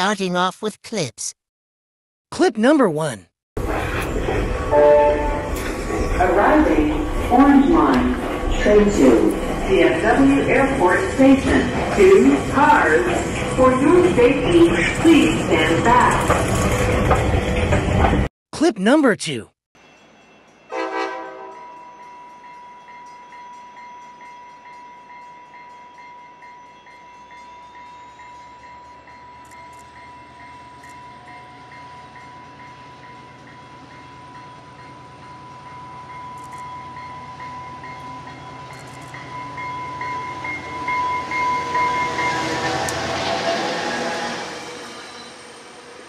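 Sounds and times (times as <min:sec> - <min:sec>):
train rumble: 0:03.6 - 0:18.3
train horn: 0:04.7 - 0:05.6, 0:20.7 - 0:21.6.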